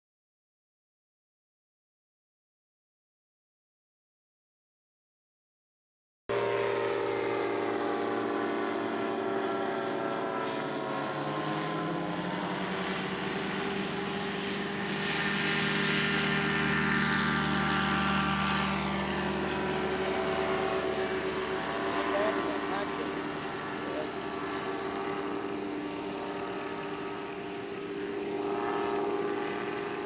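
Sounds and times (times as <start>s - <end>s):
light aircraft engine and propeller: 6.3s - 30.0s.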